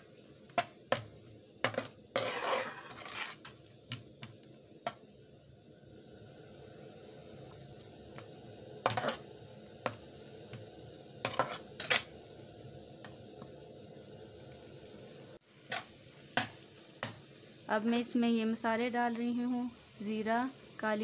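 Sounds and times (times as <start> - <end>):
faint sizzle: 0.0 - 21.0
metal spatula scraping a wok: 1.6 - 3.6, 8.8 - 9.2, 11.2 - 12.1, 15.7 - 17.1.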